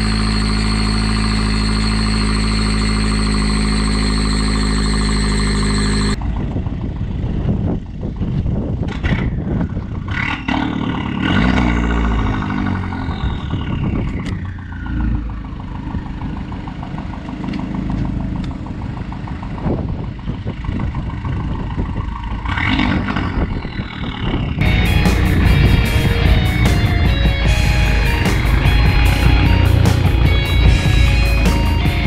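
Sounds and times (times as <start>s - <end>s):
rally car engine revving: 0.0s - 6.7s, 8.8s - 16.1s, 21.8s - 32.0s.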